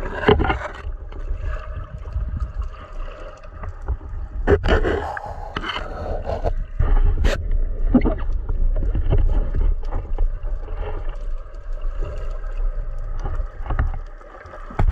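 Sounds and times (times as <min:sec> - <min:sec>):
sea water sloshing and splashing: 0:00.0 - 0:14.9
small clicks and knocks: 0:08.0 - 0:14.9.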